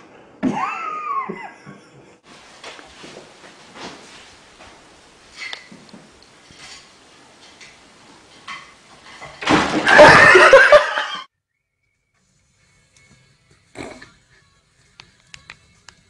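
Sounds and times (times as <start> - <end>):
people laughing: 9.9 - 11.3.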